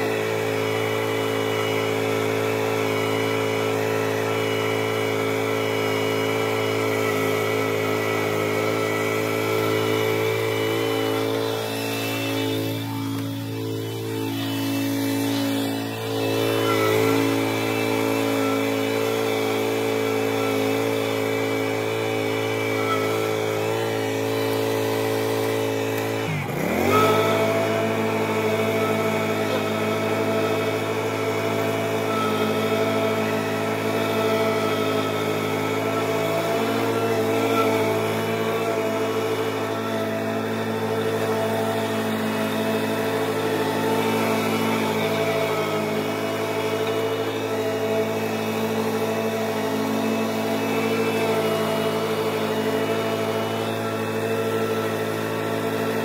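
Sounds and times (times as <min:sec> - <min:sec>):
lawn mower engine running: 0:00.0 - 0:56.0.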